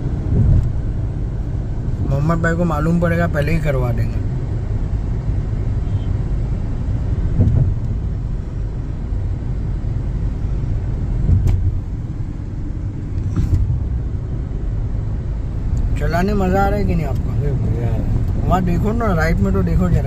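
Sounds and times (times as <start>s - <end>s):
car cabin road rumble: 0.0s - 20.0s.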